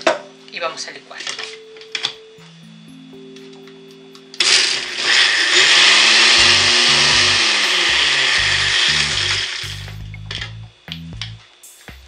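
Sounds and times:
countertop blender running: 4.4s - 9.9s.

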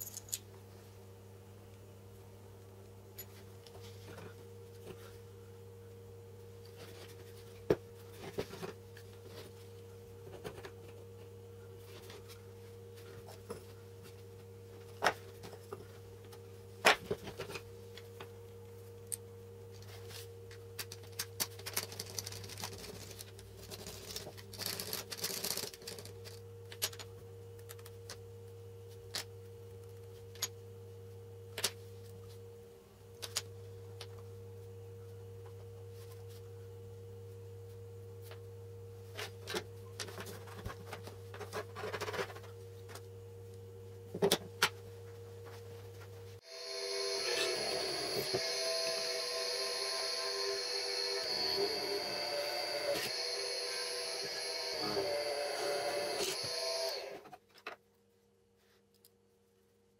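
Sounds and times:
steady low hum: 26.2s - 57.3s.

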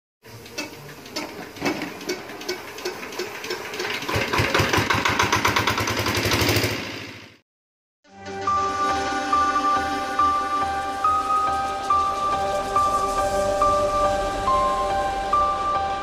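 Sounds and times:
diesel engine hand-cranked: 0.3s - 6.8s.

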